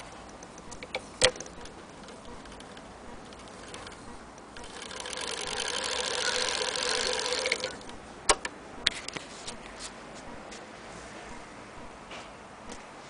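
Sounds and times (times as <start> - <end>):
sewing machine clattering: 0.8 - 4.0, 4.6 - 7.9.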